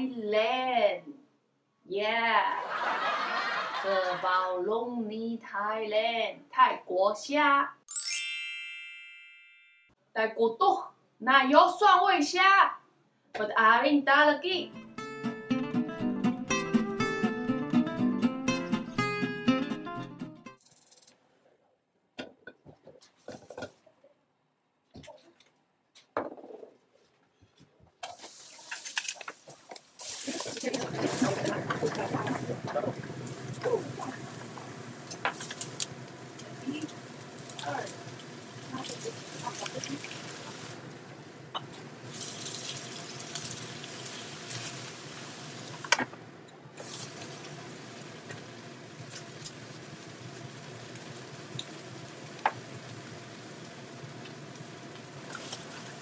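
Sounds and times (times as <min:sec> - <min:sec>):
food sizzling in hot oil: 0:28.0 - 0:46.0, 0:46.8 - 0:56.0.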